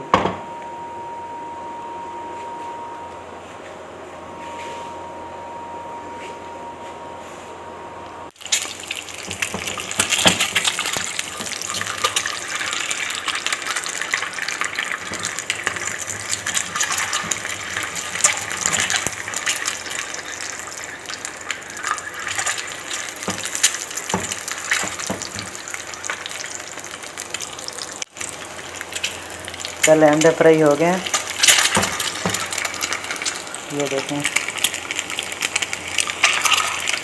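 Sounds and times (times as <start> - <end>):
eggs frying in hot oil: 8.3 - 37.0.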